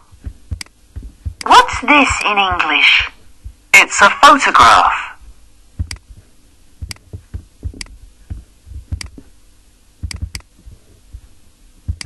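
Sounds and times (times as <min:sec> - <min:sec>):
dull low thumps: 0:00.0 - 0:02.2, 0:03.0 - 0:03.7, 0:05.2 - 0:12.0
faint steady hum: 0:00.0 - 0:12.0
computer mouse clicking: 0:08.9 - 0:09.2, 0:10.0 - 0:10.5.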